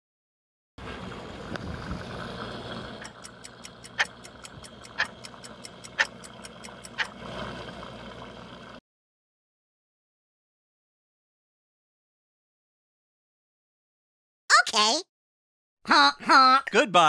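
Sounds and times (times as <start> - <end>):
rapid light ticking: 2.9 - 7.2
louder clock tick: 3.0 - 7.2.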